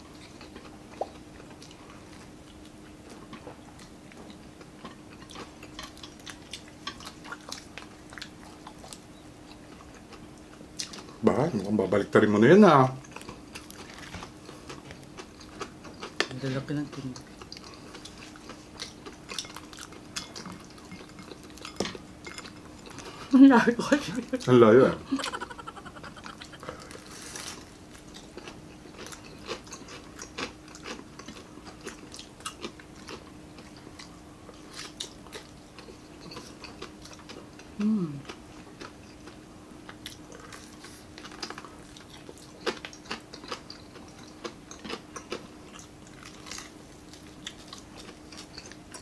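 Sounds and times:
chewing crispy fried chicken: 0.0 - 49.0
faint steady hum: 0.0 - 49.0
person humming mm: 37.8 - 38.2.

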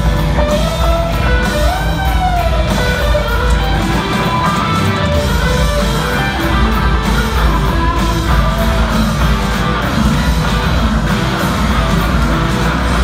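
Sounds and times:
amplified electric guitars: 0.0 - 13.0
steady drum beat: 0.0 - 13.0.

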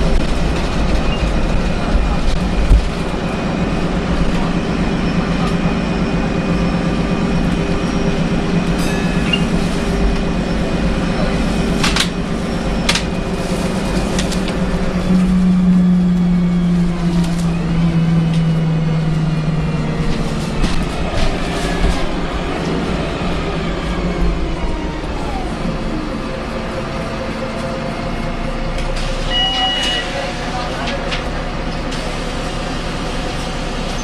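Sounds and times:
bus diesel engine drone: 0.0 - 34.0
road noise: 0.0 - 34.0.

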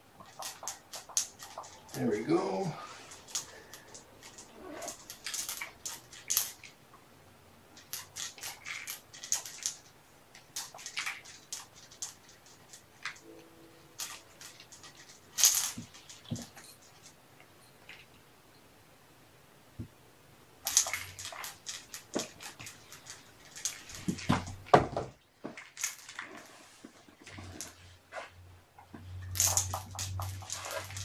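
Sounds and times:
handling scrapes and rustles: 25.5 - 28.4, 29.0 - 31.0.

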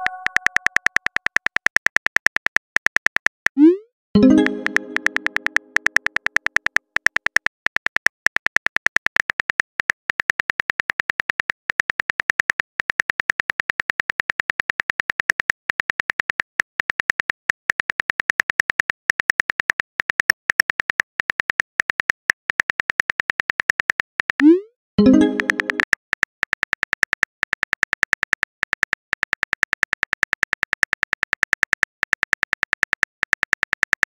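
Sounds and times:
phone keyboard clicks: 0.0 - 3.5, 4.2 - 34.0.

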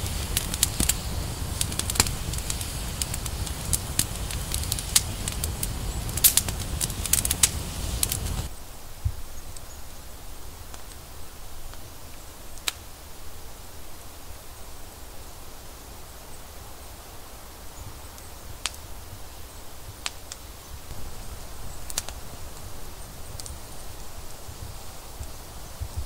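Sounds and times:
campfire crackling and popping: 0.0 - 8.5, 12.6 - 12.8, 18.2 - 18.9, 20.0 - 26.0
steady hiss: 0.0 - 26.0.

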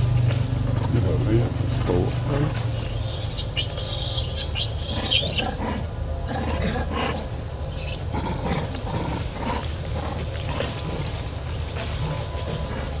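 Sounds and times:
steady low hum: 0.0 - 13.0
macaques calling: 2.6 - 5.9, 7.5 - 8.1.

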